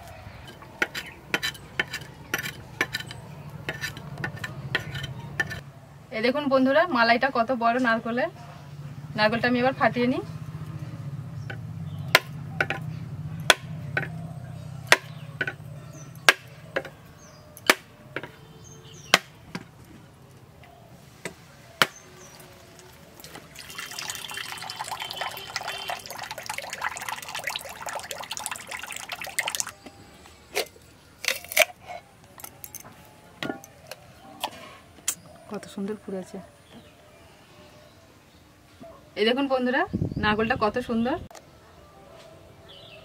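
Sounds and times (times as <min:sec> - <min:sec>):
chopper knocking coconut shell: 0:13.4 - 0:14.2, 0:14.9 - 0:15.6
coconut water pouring into bowl: 0:22.3 - 0:29.8.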